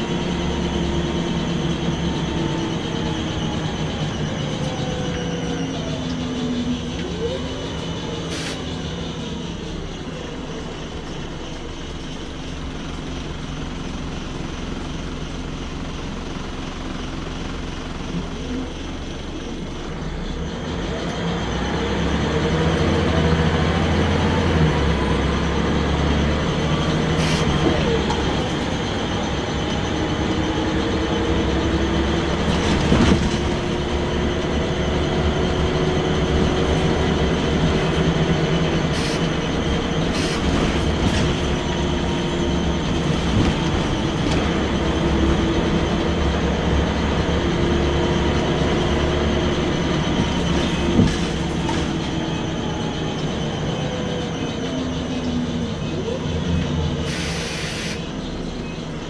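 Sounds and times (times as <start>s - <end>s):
bus engine whine: 0.0s - 59.0s
road and tyre rumble: 0.0s - 59.0s.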